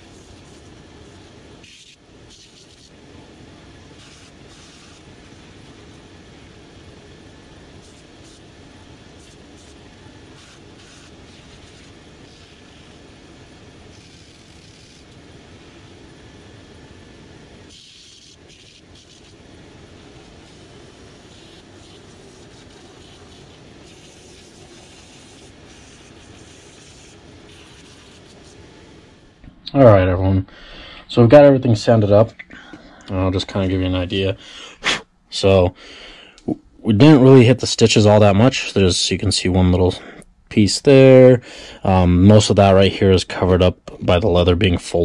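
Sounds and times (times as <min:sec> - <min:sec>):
belt sander sanding sole: 0:00.0 - 0:03.0, 0:07.8 - 0:15.4, 0:17.7 - 0:28.7.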